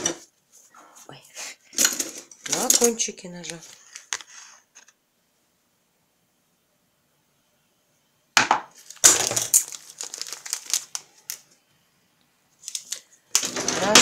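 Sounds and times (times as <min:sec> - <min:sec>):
paper sachet crinkling: 0:02.5 - 0:04.9, 0:08.7 - 0:11.6, 0:12.6 - 0:13.2.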